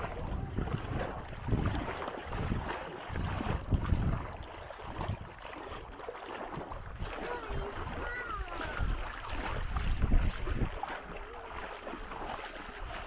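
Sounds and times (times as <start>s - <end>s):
wind gusting over microphone: 0.0s - 5.4s, 6.6s - 10.9s
small waves washing ashore: 0.0s - 13.0s.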